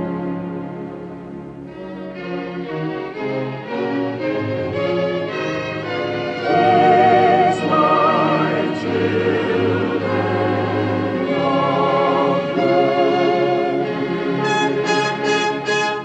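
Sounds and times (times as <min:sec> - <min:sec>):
orchestral strings: 0:00.0 - 0:16.0
choir singing: 0:02.7 - 0:16.0
operatic singing with vibrato: 0:05.3 - 0:16.0.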